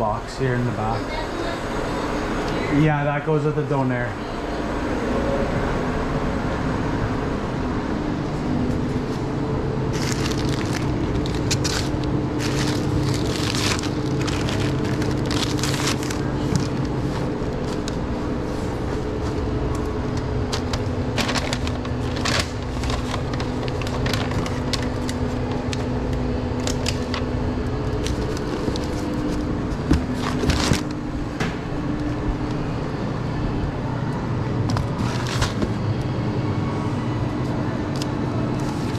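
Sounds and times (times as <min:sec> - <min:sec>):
machinery humming: 0:00.0 - 0:38.9.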